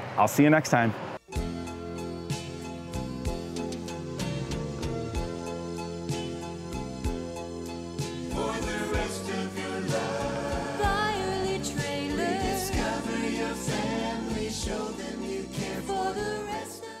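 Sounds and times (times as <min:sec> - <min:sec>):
voices singing over a beat: 0:08.3 - 0:17.0.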